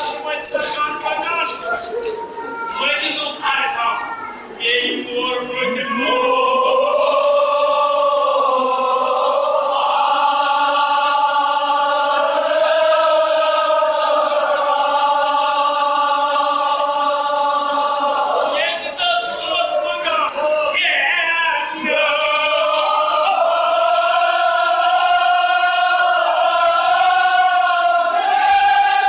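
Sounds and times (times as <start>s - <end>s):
group chanting a long note: 5.8s - 19.9s, 20.7s - 29.0s.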